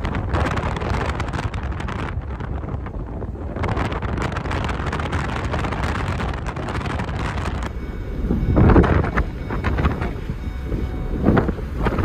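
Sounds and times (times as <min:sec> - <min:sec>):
road and engine rumble: 0:00.0 - 0:12.0
wind buffeting microphone: 0:00.0 - 0:12.0.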